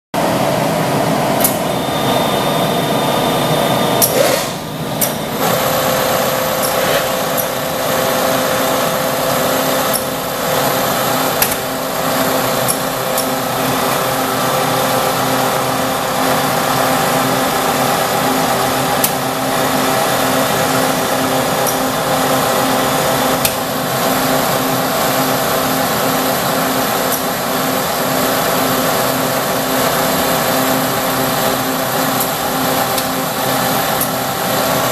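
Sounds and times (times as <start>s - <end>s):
sharp machine clicks: 4.0s - 13.5s, 21.6s - 22.0s.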